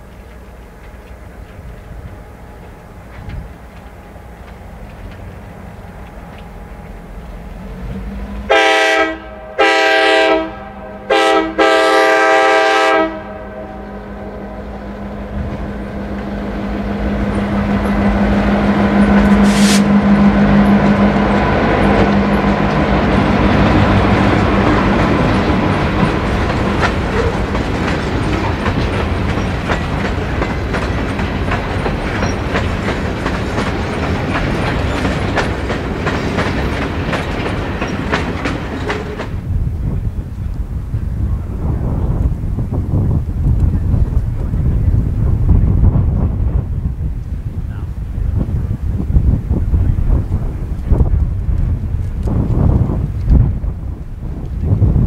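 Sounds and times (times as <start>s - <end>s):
train wheels clickety-clack: 0.0s - 9.0s, 15.3s - 40.6s, 48.4s - 55.0s
diesel locomotive engines droning: 0.0s - 55.0s.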